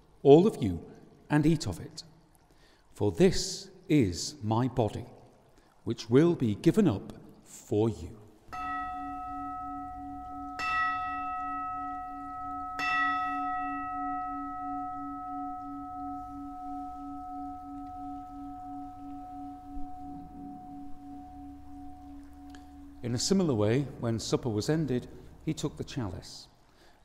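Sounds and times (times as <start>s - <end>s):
bell ringing: 8.6s - 23.2s.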